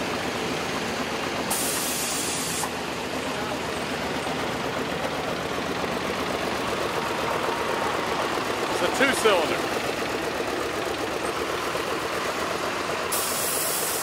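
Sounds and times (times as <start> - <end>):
tractor engine running: 0.0 - 14.0
brief hiss: 13.1 - 14.0.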